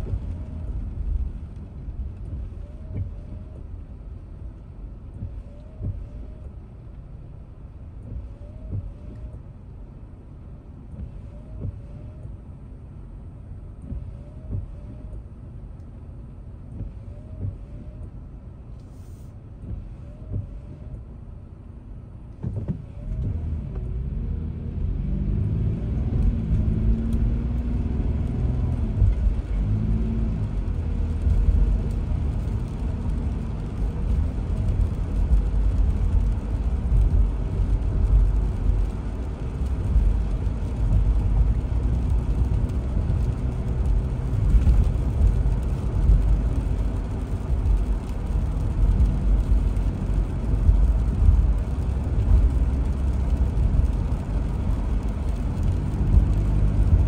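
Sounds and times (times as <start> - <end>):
car engine from inside cabin: 0.0 - 57.0
tyre hiss on wet road: 18.8 - 19.4.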